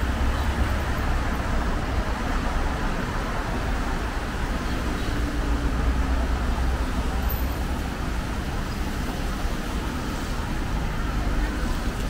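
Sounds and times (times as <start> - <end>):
city street traffic rumble: 0.0 - 12.0.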